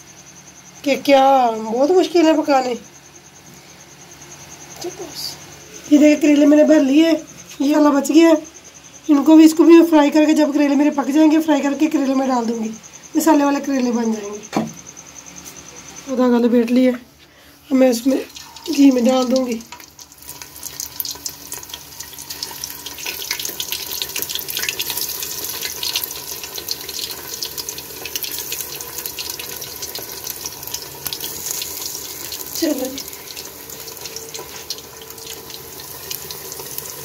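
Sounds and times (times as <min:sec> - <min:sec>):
food sizzling in pot: 0:17.5 - 0:37.0.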